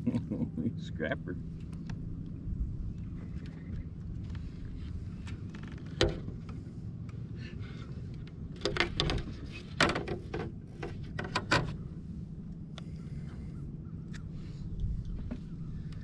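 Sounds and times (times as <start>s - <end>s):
steady low hum: 0.0s - 16.0s
fishing gear knocking and clunking: 8.6s - 11.8s.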